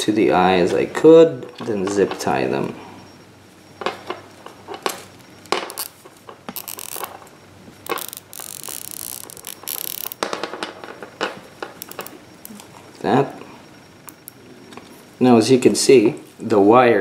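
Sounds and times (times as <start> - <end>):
zip tie ratcheting clicks: 6.6 - 7.1, 7.8 - 10.2.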